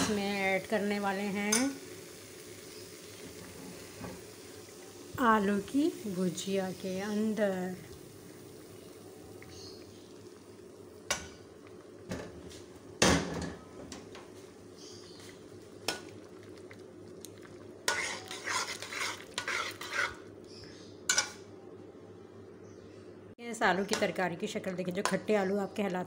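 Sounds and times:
metal spoon scraping metal pot: 17.9s - 20.3s.

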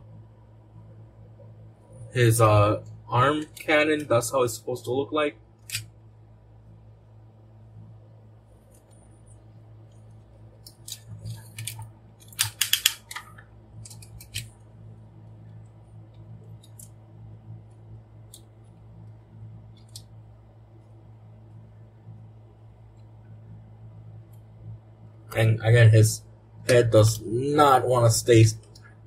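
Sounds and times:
toy robot parts clicking: 10.6s - 14.5s.

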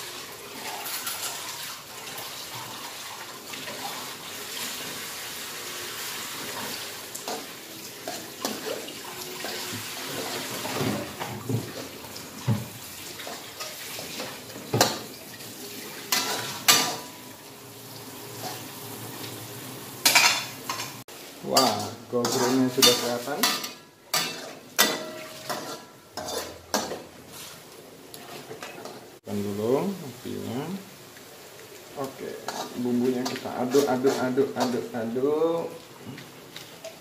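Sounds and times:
metal spatula scraping wok: 21.6s - 27.6s, 32.4s - 34.9s
noodles simmering with bubbling hiss: 25.5s - 37.0s.

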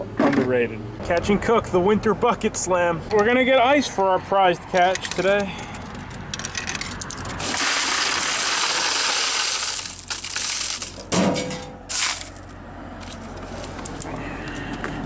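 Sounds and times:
ice clattering down chute: 7.4s - 12.2s
ice spilling onto metal grate: 7.4s - 12.4s.

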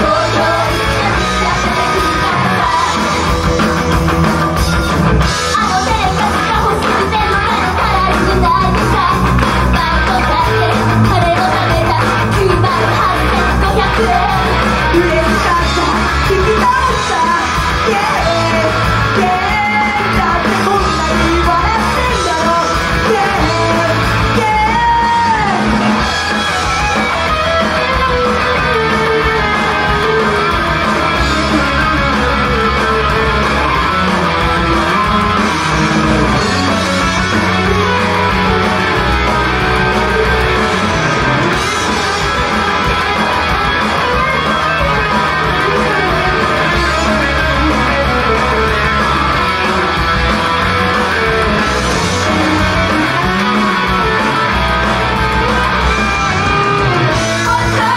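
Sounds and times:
women singing rock song: 0.0s - 4.2s, 5.2s - 27.2s, 27.8s - 57.9s
loud electric guitar: 0.0s - 57.9s.

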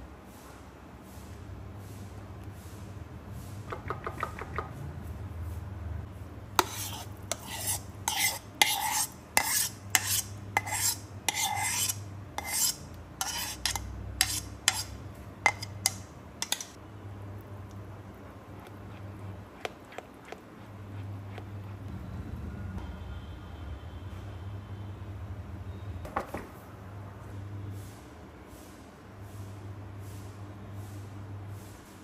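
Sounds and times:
spoon scraping a cooking dish: 6.6s - 16.8s, 18.1s - 21.8s.

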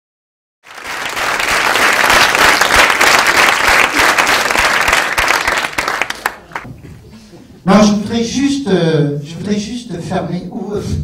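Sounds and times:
audience applauding: 0.7s - 6.7s.

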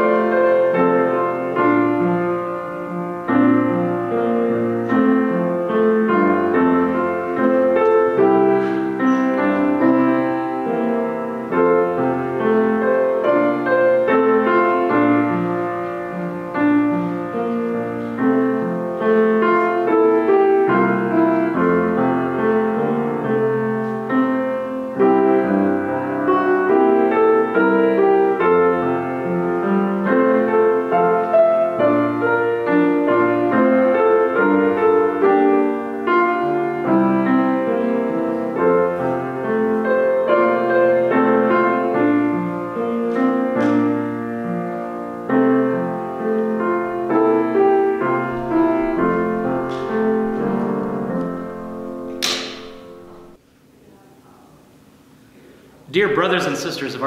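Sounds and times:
solo piano music: 0.0s - 53.4s.

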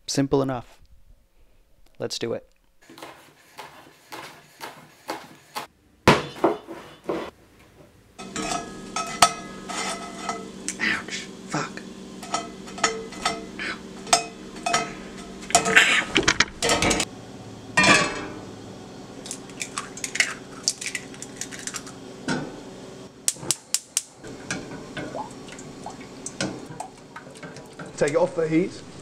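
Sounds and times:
low hum: 7.7s - 23.3s
spatula scraping saucepan: 8.2s - 17.1s
toast in iron skillet: 8.2s - 17.1s
eggs cracking: 19.2s - 22.0s.

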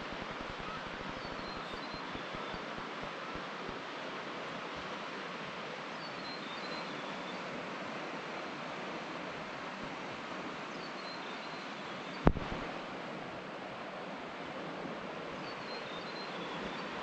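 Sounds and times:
rushing outdoor ambience: 0.0s - 17.0s
sharp knock: 12.3s - 12.7s.

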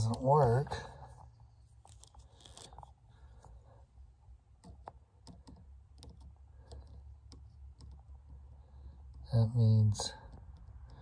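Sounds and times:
small plastic clicks and taps: 4.6s - 8.4s.

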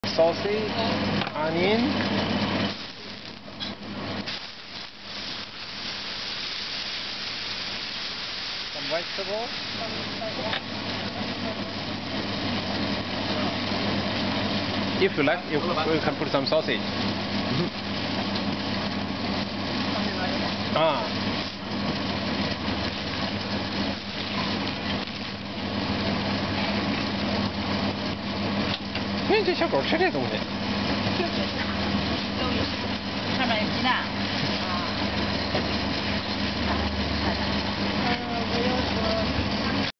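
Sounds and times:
engine humming steadily: 0.0s - 4.3s, 8.7s - 39.9s
food sizzling on a griddle: 0.0s - 39.8s.

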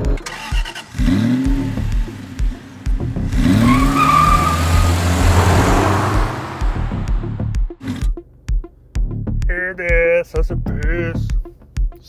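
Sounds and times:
car engine revving: 0.0s - 8.1s
tyres squealing: 3.5s - 5.9s
regular low beat: 4.8s - 12.0s.

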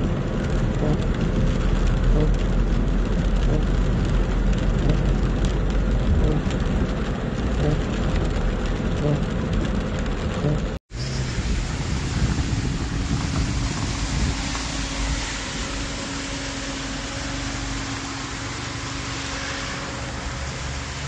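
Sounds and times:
car engine and road rumble: 0.0s - 21.0s
water and rain hissing: 0.0s - 21.0s.

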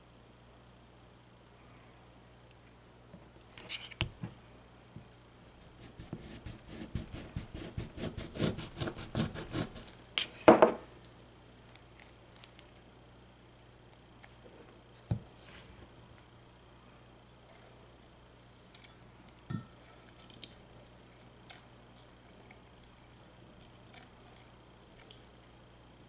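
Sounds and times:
knife cutting through lemon: 5.8s - 10.4s.

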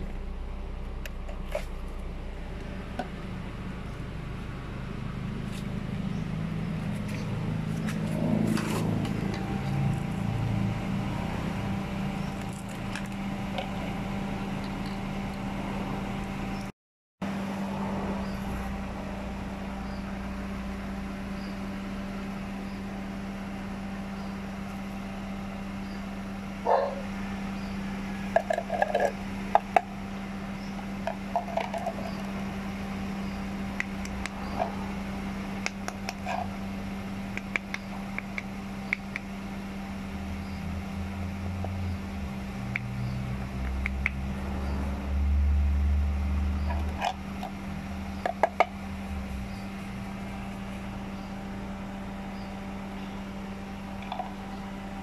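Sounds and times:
low rumble: 0.0s - 16.7s
steady low hum: 0.0s - 55.0s.

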